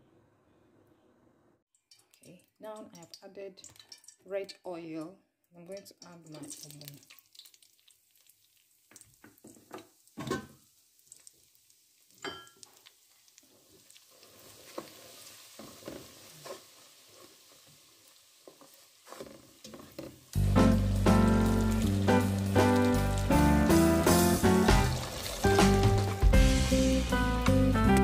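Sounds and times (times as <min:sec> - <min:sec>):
faint oil sizzle: 0:05.6 - 0:28.0
loud music: 0:20.4 - 0:28.0.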